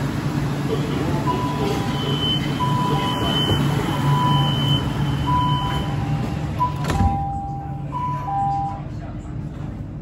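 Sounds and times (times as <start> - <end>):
train low hum: 0.0 - 10.0
two-tone warning beeps: 1.2 - 8.9.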